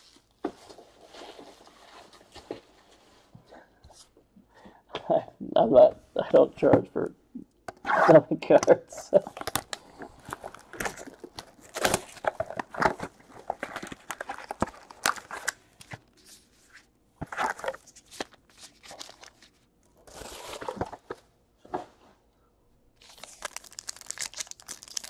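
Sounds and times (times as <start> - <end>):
foil wrappers tearing and crinkling: 9.3 - 16.2, 17.4 - 20.9, 23.0 - 25.0.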